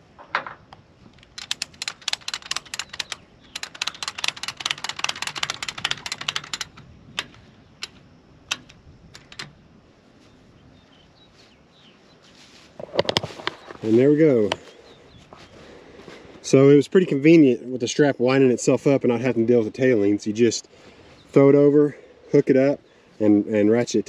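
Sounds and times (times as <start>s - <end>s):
ratchet strap clicking: 1.2s - 9.6s.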